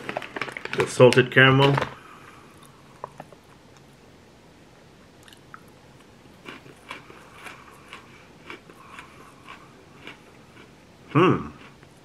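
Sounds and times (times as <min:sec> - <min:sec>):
person crunching pretzel: 0:05.2 - 0:12.0.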